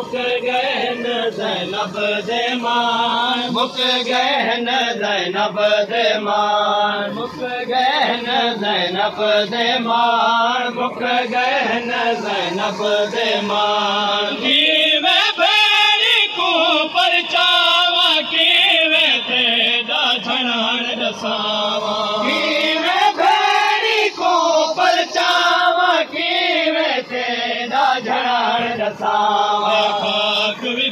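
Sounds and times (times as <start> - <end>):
men chanting a lament: 0.0 - 30.9.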